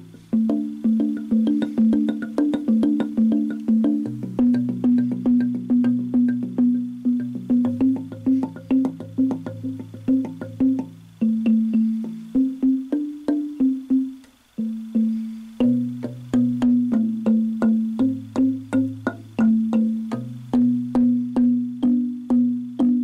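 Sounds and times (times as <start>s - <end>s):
wooden tongue drum notes: 0.0s - 23.0s.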